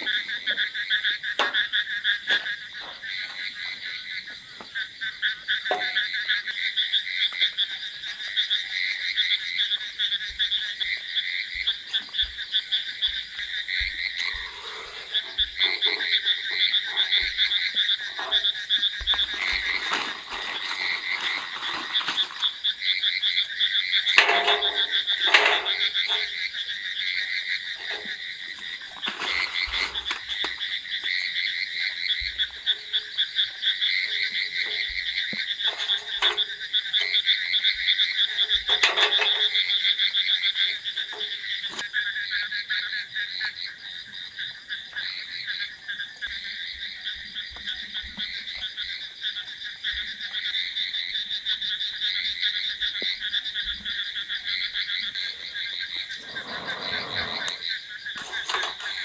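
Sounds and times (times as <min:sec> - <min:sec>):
frogs calling chorus: 0:00.0 - 0:59.0
charcoal and metal grill knocks: 0:24.1 - 0:26.4, 0:35.6 - 0:37.2, 0:38.3 - 0:39.7.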